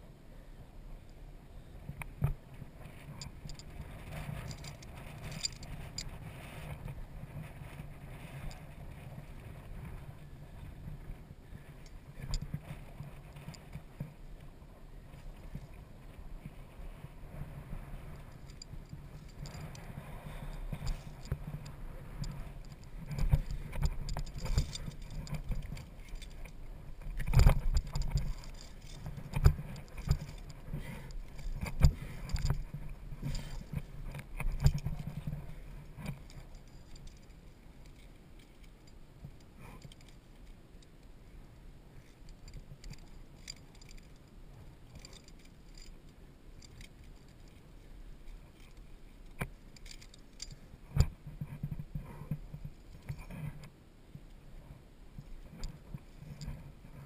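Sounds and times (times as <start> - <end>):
carabiners clinking on steel cable: 2.9 - 6.5, 18.2 - 40.9, 42.0 - 50.6.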